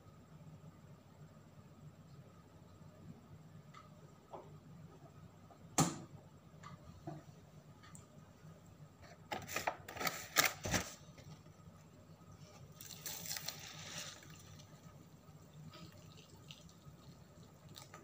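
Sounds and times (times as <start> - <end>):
water pouring into paper cup: 12.6 - 18.0.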